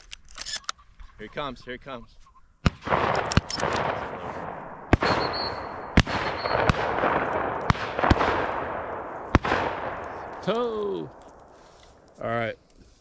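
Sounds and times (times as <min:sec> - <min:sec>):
shotgun shots echoing: 0:02.6 - 0:11.5.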